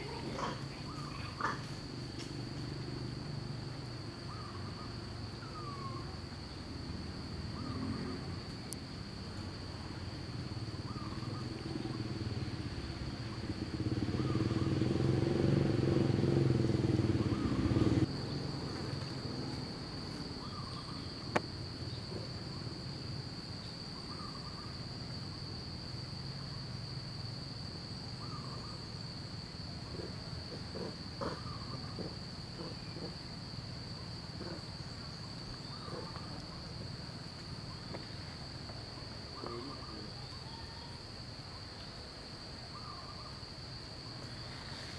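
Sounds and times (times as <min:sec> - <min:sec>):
high-pitched insect drone: 0:30.4 - 0:41.3.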